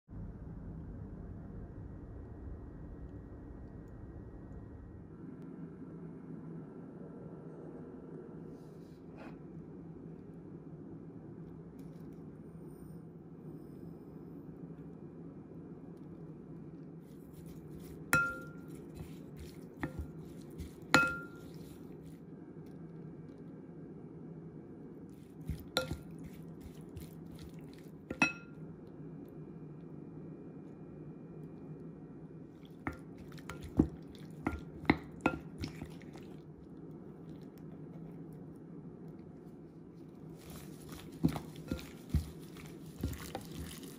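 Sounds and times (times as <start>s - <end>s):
spoon clinking on glass bowl: 18.2s - 18.8s, 20.9s - 21.6s, 25.8s - 26.1s, 28.1s - 28.6s
light spoon taps: 18.2s - 21.5s
wet squishing of shrimp: 25.1s - 28.1s, 32.5s - 38.3s, 39.9s - 43.9s.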